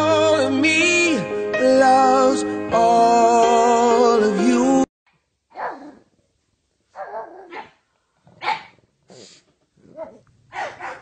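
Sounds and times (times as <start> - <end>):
dog barking: 5.5 - 6.1, 7.0 - 7.8, 8.4 - 8.8, 9.9 - 11.0.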